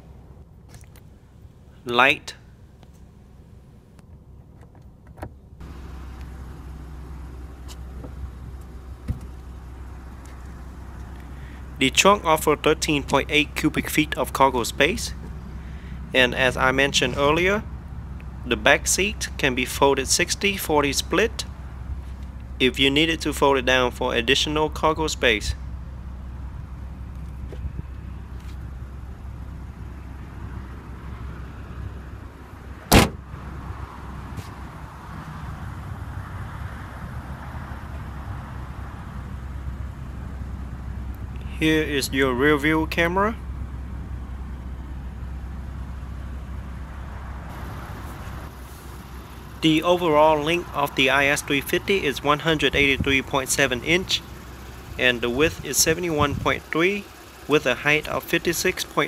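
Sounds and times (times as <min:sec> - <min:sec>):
low steady rumble: 0:00.0 - 0:59.0
trunk latch clack: 0:09.0 - 0:09.4, 0:32.8 - 0:33.3.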